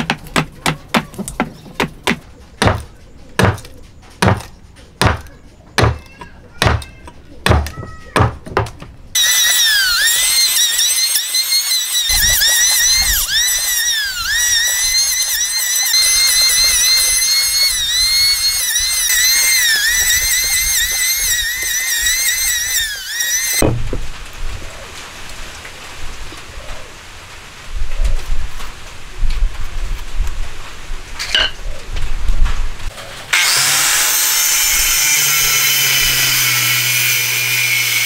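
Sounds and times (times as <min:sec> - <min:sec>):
electric hand planer whining: 0:09.2 - 0:23.6, 0:33.3 - 0:38.0.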